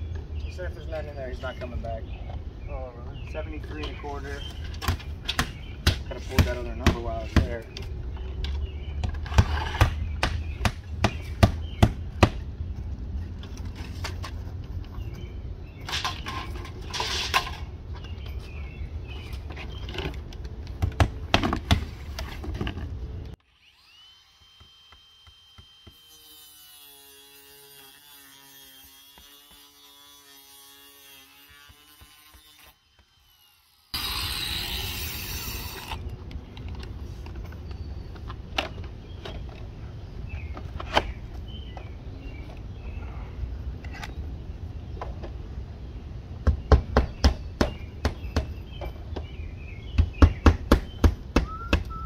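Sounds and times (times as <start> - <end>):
power saw cutting siding: 23.4 - 36.1.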